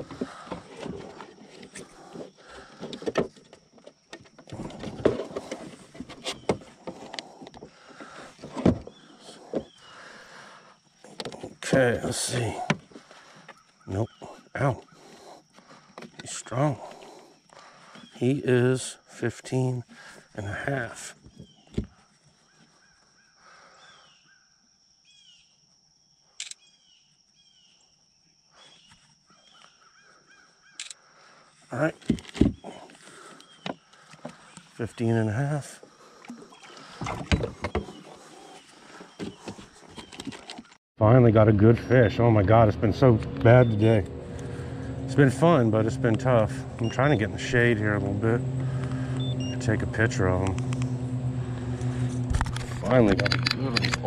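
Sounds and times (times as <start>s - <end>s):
bird chirping calls: 13.2s - 15.2s.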